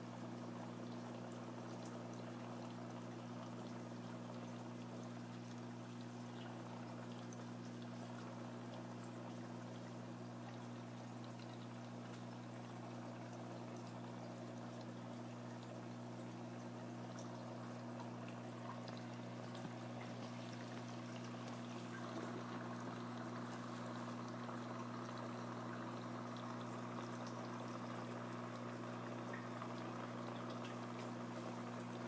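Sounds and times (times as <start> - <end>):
aquarium water bubbling: 0.0 - 32.0
steady electrical hum: 0.0 - 32.0.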